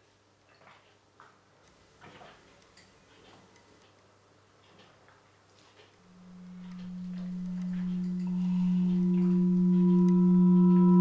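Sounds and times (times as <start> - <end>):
high ringing overtones: 6.1 - 11.0
low droning tone: 6.1 - 11.0.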